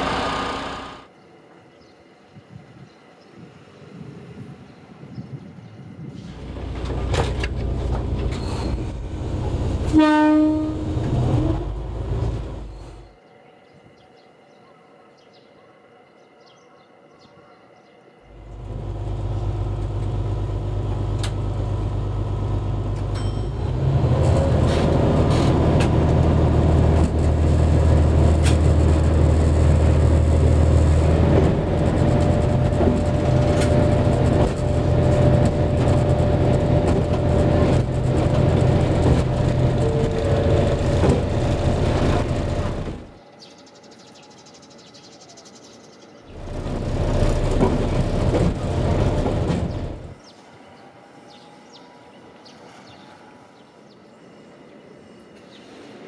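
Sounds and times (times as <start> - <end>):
vehicle engine running: 0.0 - 1.0, 24.7 - 43.1, 46.3 - 50.2.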